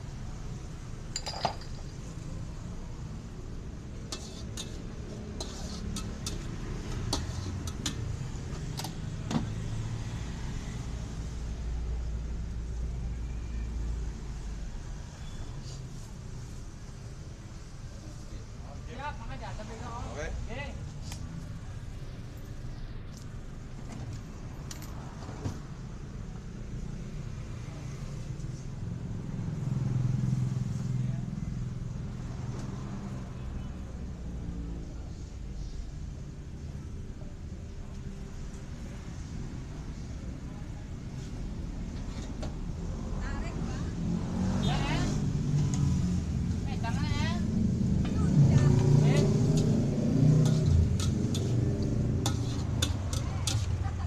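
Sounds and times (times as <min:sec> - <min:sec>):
road traffic rumble: 0:00.0 - 0:54.0
vehicle engine rumbling: 0:44.1 - 0:54.0.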